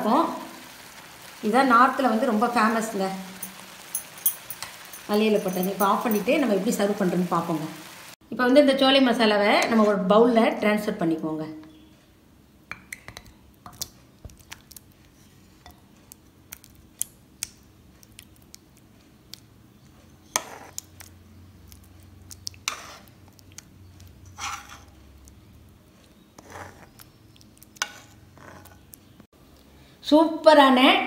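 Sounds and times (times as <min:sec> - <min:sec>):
spoon clinking against dishes: 0:03.4 - 0:06.5.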